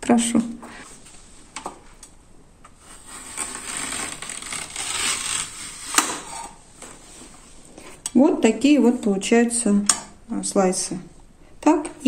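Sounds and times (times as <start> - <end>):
vegetable scraping on slicer blade: 2.8 - 6.6.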